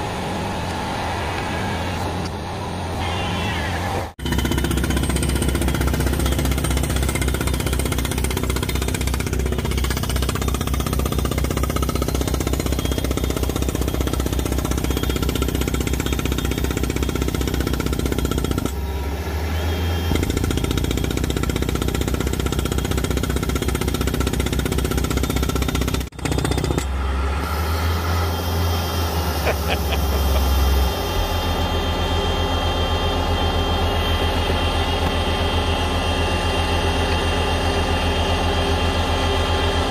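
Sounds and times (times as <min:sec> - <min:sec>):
engine running: 0:00.0 - 0:39.9
rock drill pounding: 0:04.2 - 0:18.9, 0:20.1 - 0:27.0, 0:32.1 - 0:35.8.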